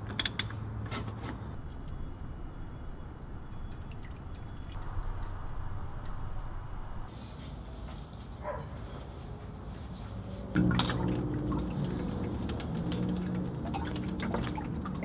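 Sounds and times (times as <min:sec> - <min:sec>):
liquid trickling into jug: 0:10.6 - 0:15.0.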